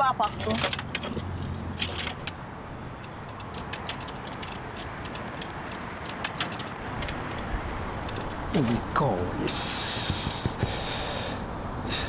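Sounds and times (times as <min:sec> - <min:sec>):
car keys jangling: 0:00.2 - 0:08.9
key clicking in ignition: 0:00.4 - 0:08.9.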